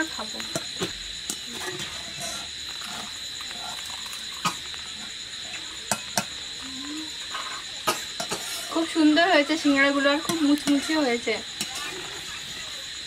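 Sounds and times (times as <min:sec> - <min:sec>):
crickets chirring: 0:00.0 - 0:13.0
crunchy food being chewed: 0:01.3 - 0:08.4.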